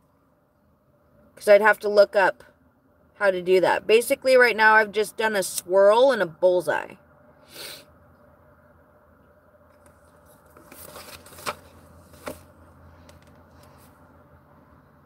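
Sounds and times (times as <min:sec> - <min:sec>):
low steady hum: 0:00.0 - 0:15.0
paper and pen rustling: 0:09.8 - 0:12.5.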